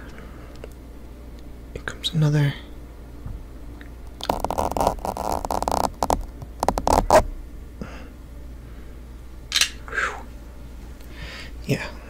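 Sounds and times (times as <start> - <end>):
fingers rubbing and plucking: 4.2 - 7.3.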